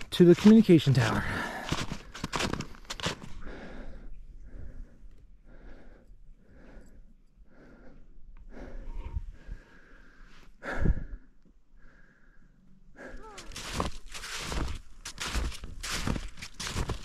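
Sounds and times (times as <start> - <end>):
person breathing hard: 3.2 - 14.7.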